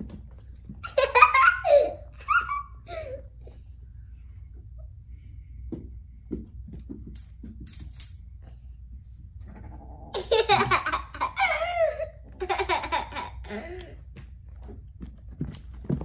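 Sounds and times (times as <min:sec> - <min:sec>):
child laughing and giggling: 0:00.8 - 0:03.3, 0:10.1 - 0:13.9.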